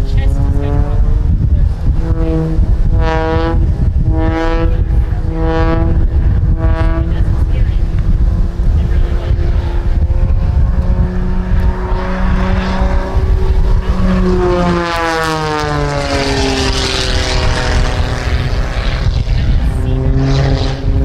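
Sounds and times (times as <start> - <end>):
propeller plane engine droning: 0.0 - 21.0
wind rumble on microphone: 0.0 - 21.0.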